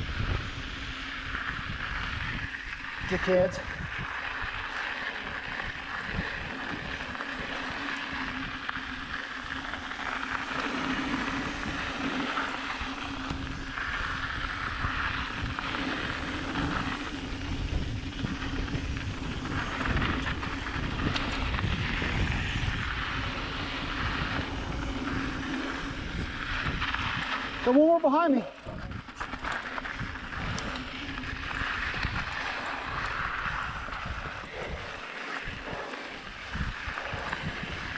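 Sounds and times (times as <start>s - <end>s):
bike tyres rattling over trail: 0.0s - 37.9s
wind rumbling on camera: 0.0s - 37.9s
steady droning hum: 3.8s - 27.7s.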